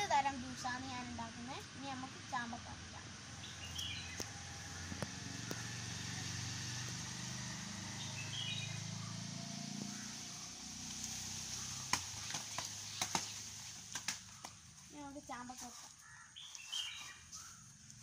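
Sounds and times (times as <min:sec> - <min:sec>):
passing vehicle engine hum: 0:00.0 - 0:14.6
bird chirp: 0:03.3 - 0:06.4, 0:07.2 - 0:10.7, 0:11.5 - 0:14.7, 0:16.0 - 0:17.9.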